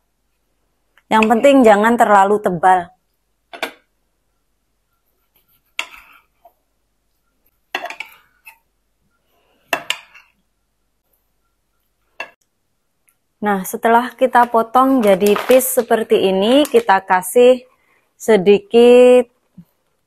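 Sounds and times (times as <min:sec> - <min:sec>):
knife scraping plate: 0:05.2 - 0:06.4.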